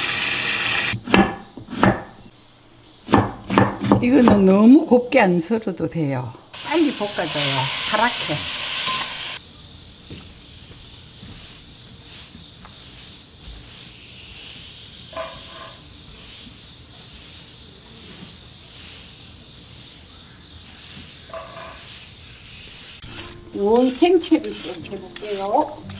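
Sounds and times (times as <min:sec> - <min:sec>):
insects trilling: 0:00.0 - 0:25.9.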